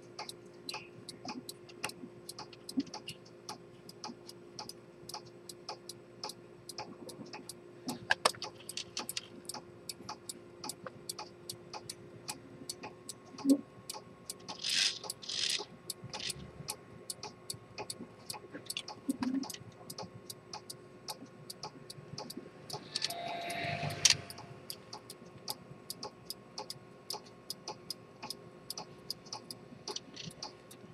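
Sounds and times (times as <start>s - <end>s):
pocket watch ticking: 0.0s - 23.2s, 24.3s - 30.8s.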